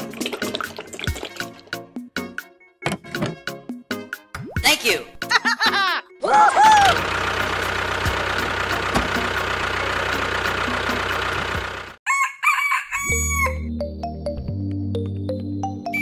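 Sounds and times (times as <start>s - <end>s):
rooster crowing: 12.0s - 13.7s.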